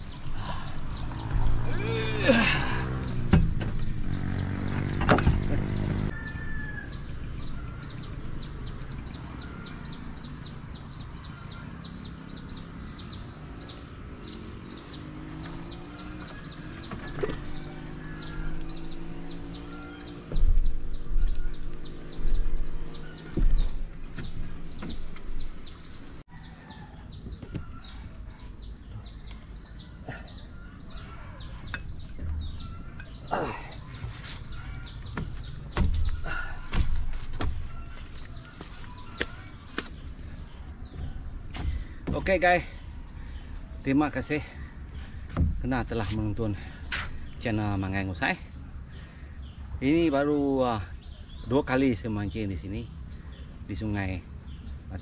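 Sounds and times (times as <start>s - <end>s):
bird chirping: 0.0s - 55.0s
outdoor background noise: 0.0s - 55.0s.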